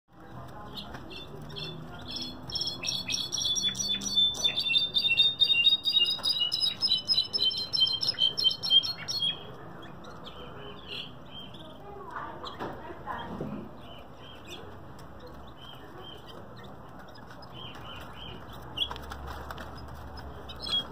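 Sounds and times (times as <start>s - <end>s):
bird singing ringing whistled notes: 1.2s - 9.5s.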